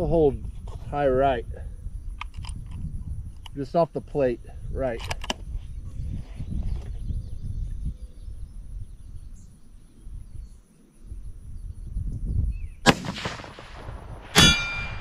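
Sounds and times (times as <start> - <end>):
wind rumbling on microphone: 0.0 - 15.0
rifle shot: 12.8 - 15.0.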